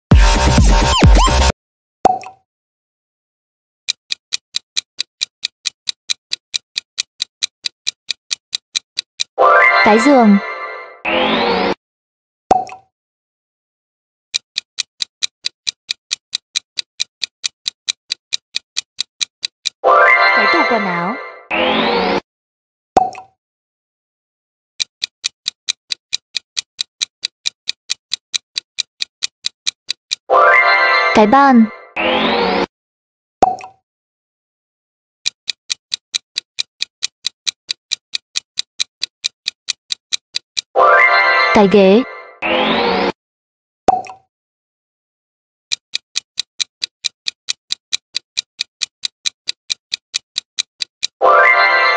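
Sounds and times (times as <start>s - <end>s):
clock ticking: 0.1s - 1.5s, 3.9s - 10.2s, 14.3s - 20.8s, 24.8s - 30.3s, 35.2s - 42.0s, 45.7s - 51.9s.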